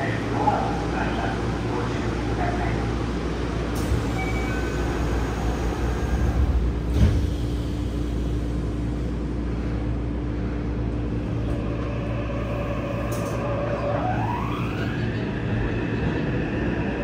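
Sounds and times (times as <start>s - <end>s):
steady train hum: 0.0s - 17.0s.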